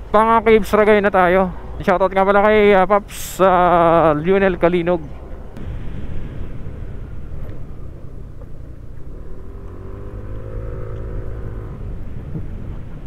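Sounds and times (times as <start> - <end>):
road and wind rumble: 0.0 - 13.0
scooter engine rising in pitch: 7.1 - 12.6.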